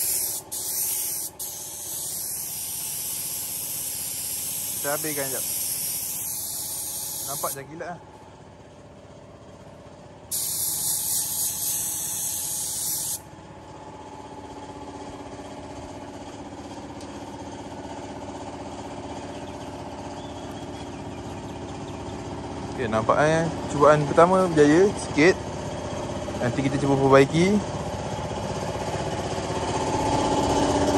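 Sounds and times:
spray gun hissing: 0.0 - 7.6, 10.3 - 13.2
machine hum: 0.0 - 14.0.

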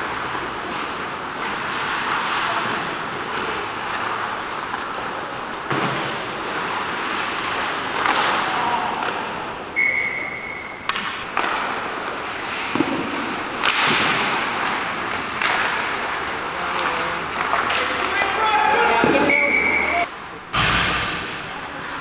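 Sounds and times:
sticks and puck clacking: 0.0 - 20.1
skates hissing on ice: 0.4 - 8.1
referee's whistle: 9.8 - 10.9, 19.1 - 20.1.

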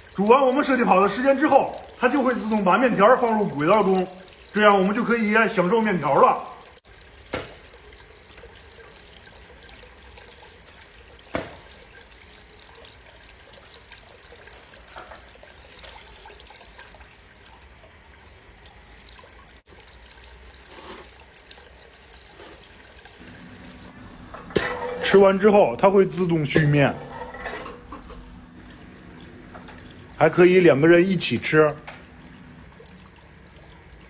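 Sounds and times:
water trickling down metal slide: 0.0 - 34.0.

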